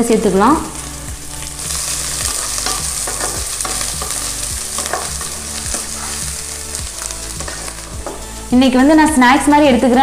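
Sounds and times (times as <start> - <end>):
food sizzling in a pan: 0.0 - 10.0
wooden spatula scraping a pan: 1.5 - 8.2.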